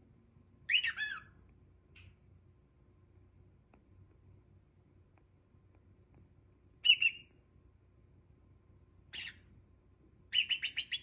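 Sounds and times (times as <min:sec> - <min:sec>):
cockatiel chirping: 0:00.7 - 0:01.4, 0:06.8 - 0:07.3, 0:09.1 - 0:09.5, 0:10.3 - 0:11.0.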